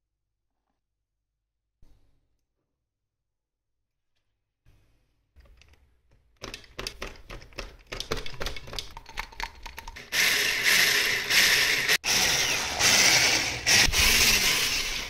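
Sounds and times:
electric hand mixer running: 10.0 - 15.0.

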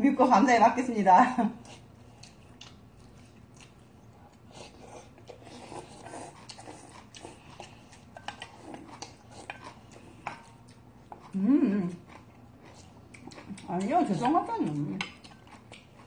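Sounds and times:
slurping soup: 4.5 - 10.3.

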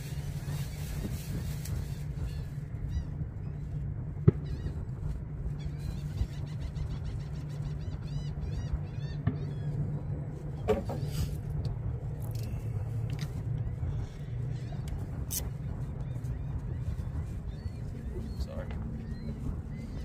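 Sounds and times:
low rumble: 0.0 - 20.0
birds chirping: 4.3 - 20.0.

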